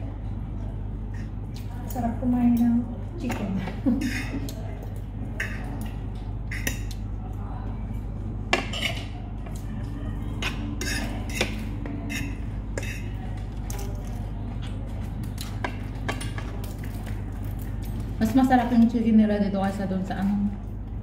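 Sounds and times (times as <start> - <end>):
cutlery clinking on plates: 8.5 - 9.2.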